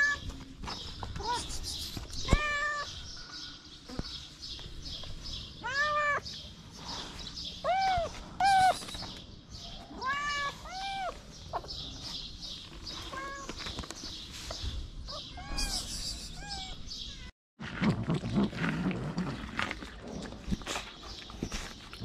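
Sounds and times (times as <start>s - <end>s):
cats meowing: 1.1s - 3.0s, 5.6s - 6.3s, 7.5s - 9.0s, 9.8s - 11.7s, 13.0s - 13.6s, 15.1s - 17.3s.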